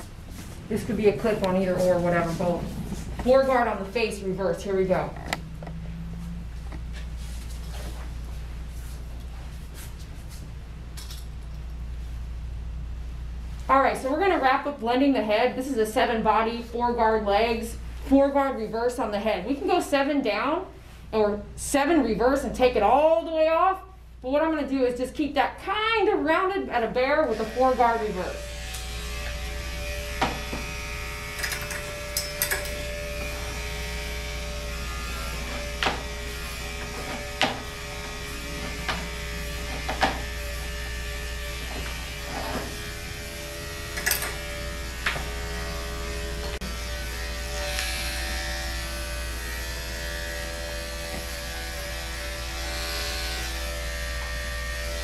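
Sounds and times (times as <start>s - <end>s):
electric clipper running: 27.2s - 55.0s.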